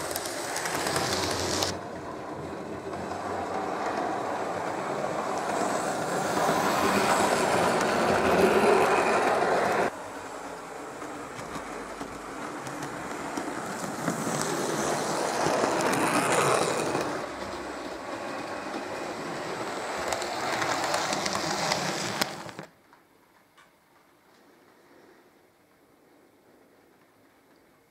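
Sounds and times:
model train wheels clattering: 0.0s - 10.0s, 10.6s - 22.7s.

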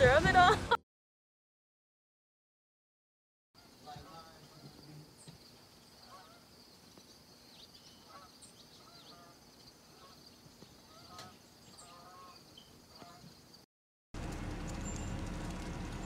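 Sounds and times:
birds honking calls: 3.6s - 13.5s.

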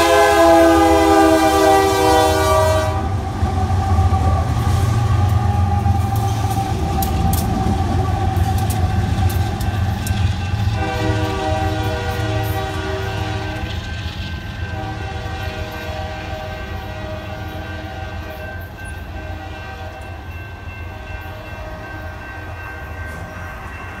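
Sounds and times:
train horn: 0.0s - 3.3s, 10.6s - 14.0s, 14.6s - 20.2s, 20.8s - 23.4s
freight train rumbling: 0.0s - 24.0s.

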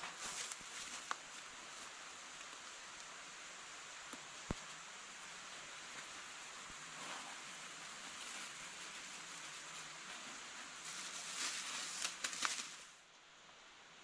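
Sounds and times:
outdoor ambience hiss: 0.0s - 14.0s
plastic bag rustling: 6.8s - 13.0s.

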